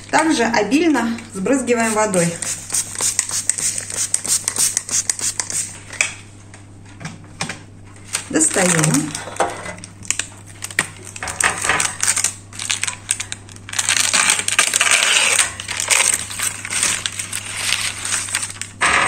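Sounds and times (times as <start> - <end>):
parchment paper crinkling: 1.8 - 5.8, 8.0 - 18.8.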